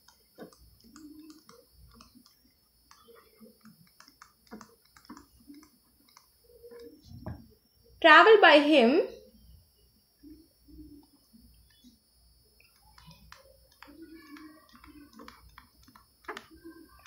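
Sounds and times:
stylus tapping on tablet screen: 0.0 - 7.5, 12.6 - 17.0.

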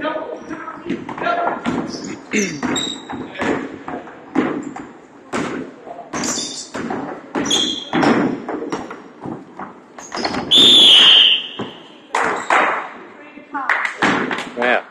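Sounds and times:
sneakers squeaking on wooden floor: 0.4 - 5.0, 6.1 - 12.6
basketball bouncing: 0.9 - 10.6
referee's whistle blast: 10.5 - 12.0.

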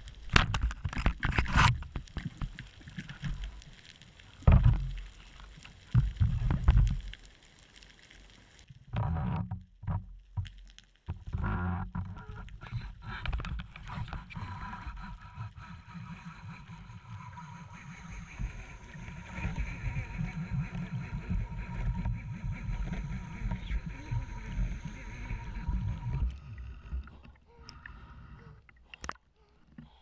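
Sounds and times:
underwater rumble of water: 0.0 - 30.0
faint steady whine: 13.0 - 29.2.

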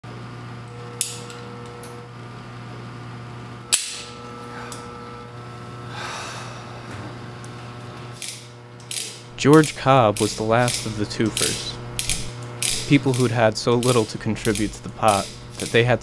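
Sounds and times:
steady low hum: 0.1 - 16.0
breath: 5.9 - 6.9
revolver clicking: 7.4 - 16.0.

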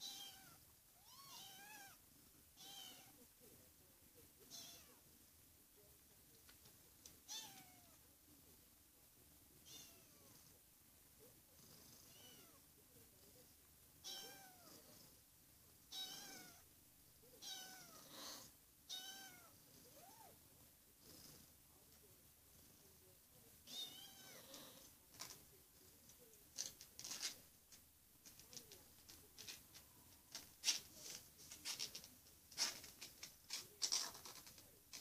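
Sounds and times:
kitten meowing: 0.0 - 2.0, 4.5 - 5.0, 9.6 - 10.2, 18.9 - 20.2.

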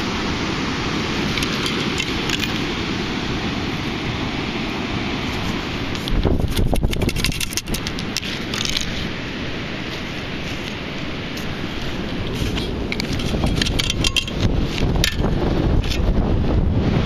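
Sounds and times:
wind on microphone: 0.0 - 17.0
metal scoop clicks and rattles: 1.3 - 2.7, 6.0 - 9.1, 12.2 - 16.1.

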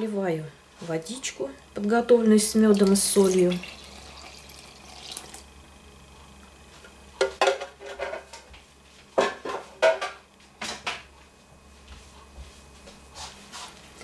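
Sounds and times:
kitchenware clattering: 7.2 - 8.4, 9.2 - 11.0.

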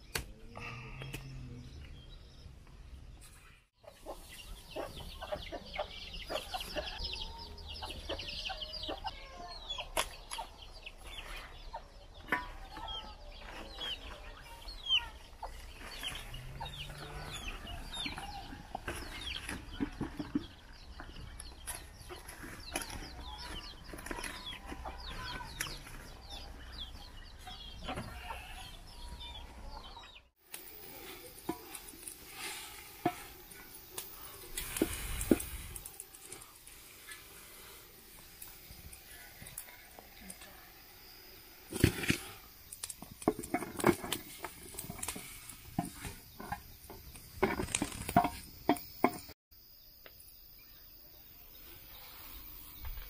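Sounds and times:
chicks cheeping: 3.8 - 30.3
chickens clucking: 3.8 - 40.5.

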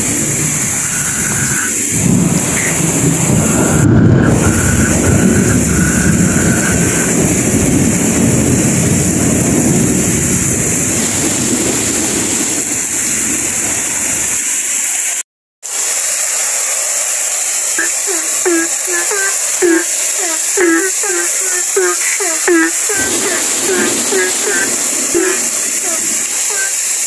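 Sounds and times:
heavy rain pouring: 0.0 - 27.0
runoff splashing onto concrete: 0.0 - 27.0.

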